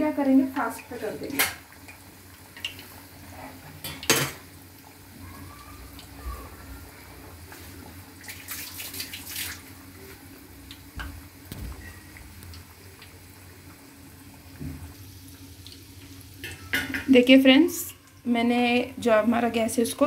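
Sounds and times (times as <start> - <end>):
deep-frying sizzle in oil: 0.0 - 20.0
oil crackling and popping: 1.3 - 3.2, 7.8 - 17.1.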